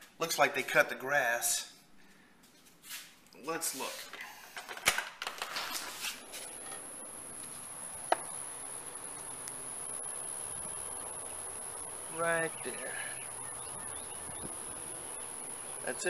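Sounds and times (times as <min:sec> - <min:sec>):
window blinds rattling: 0:04.7 - 0:06.2
high-pitched insect buzz: 0:06.4 - 0:16.0.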